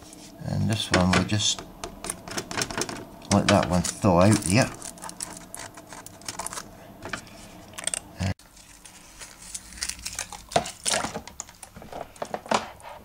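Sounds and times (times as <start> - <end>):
handling clicks and scrapes: 2.0 - 10.8
aluminium foil crinkling: 3.4 - 12.3.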